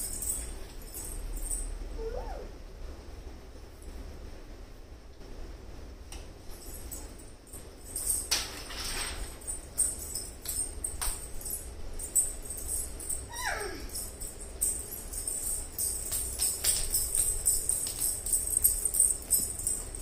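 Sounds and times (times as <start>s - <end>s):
small bells jingling: 0.0s - 1.9s, 6.4s - 20.0s.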